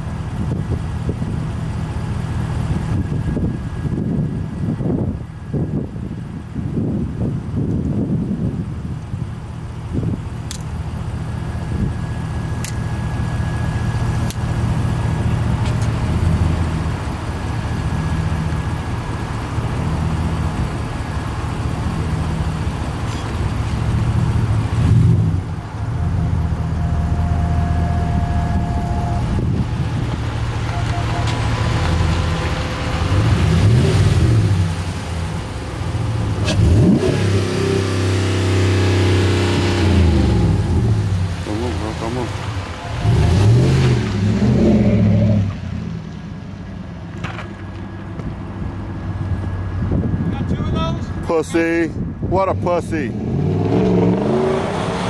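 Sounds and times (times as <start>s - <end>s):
truck engine idling: 0.0s - 33.8s
engine revving: 21.8s - 35.1s, 36.3s - 45.9s, 53.0s - 55.0s.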